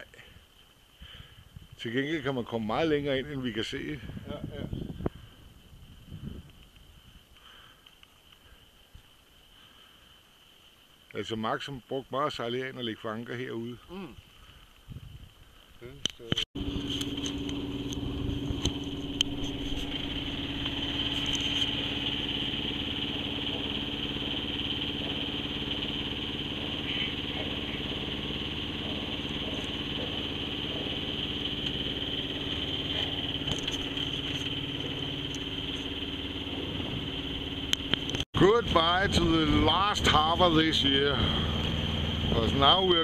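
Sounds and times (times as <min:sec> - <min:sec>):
boat engine humming: 0:16.6 - 0:43.0.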